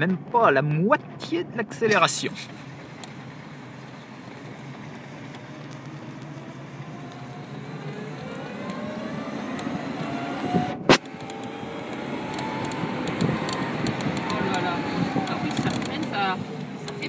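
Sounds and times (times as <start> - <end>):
road and wind noise: 0.0 - 17.0
electric motor whining: 4.2 - 17.0.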